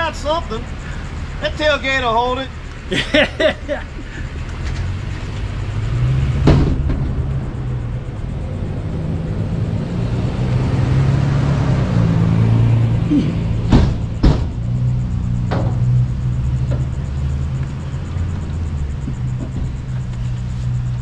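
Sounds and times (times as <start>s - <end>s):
vehicle engine rumbling: 0.0s - 21.0s
sharp knock: 6.4s - 7.1s, 13.6s - 14.8s, 15.5s - 16.0s.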